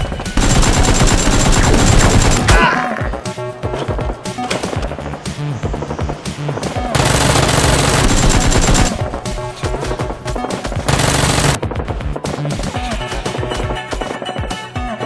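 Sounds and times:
background music: 0:00.0 - 0:15.0
automatic gunfire: 0:00.4 - 0:02.6, 0:07.0 - 0:09.0, 0:10.9 - 0:11.6.

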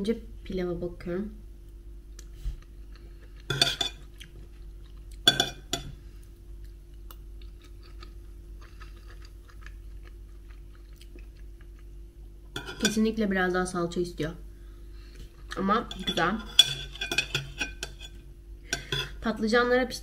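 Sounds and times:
steady low hum: 0:00.0 - 0:20.0
soft chewing: 0:02.1 - 0:12.8, 0:15.0 - 0:16.3
metal spoon scraping a bowl: 0:12.6 - 0:13.0, 0:15.8 - 0:19.2.

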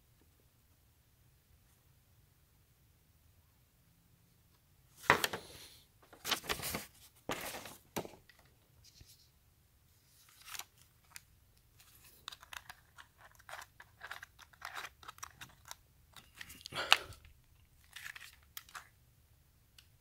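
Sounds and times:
paper rustling and crinkling: 0:06.1 - 0:08.3, 0:10.0 - 0:17.2, 0:17.8 - 0:18.9
plastic grip clicks and scrapes: 0:11.8 - 0:17.2.

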